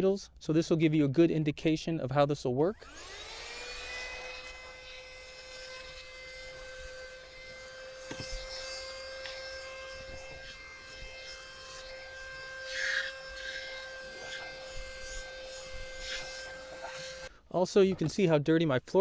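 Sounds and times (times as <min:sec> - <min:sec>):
car vacuum whining: 0:02.8 - 0:17.3
nozzle scraping cloth upholstery: 0:12.7 - 0:17.3.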